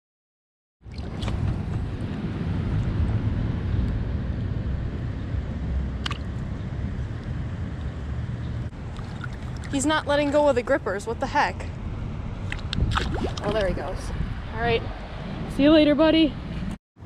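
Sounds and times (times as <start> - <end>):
small water splashes: 0.8 - 1.8, 6.0 - 6.4, 8.8 - 10.4, 12.4 - 13.9
creek water moving: 0.8 - 2.2, 8.7 - 10.8, 12.4 - 14.1
wind rumble on microphone: 0.8 - 16.8.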